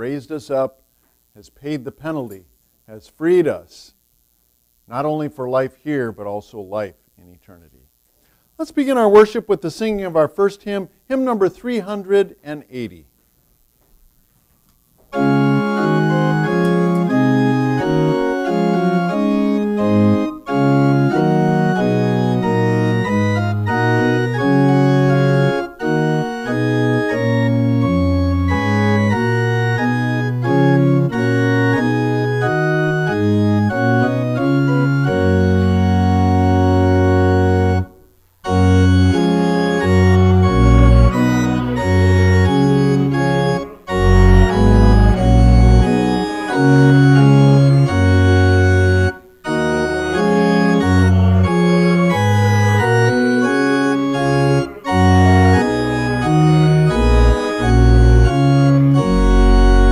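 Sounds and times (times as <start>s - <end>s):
church organ playing hymn: 15.1s - 59.9s.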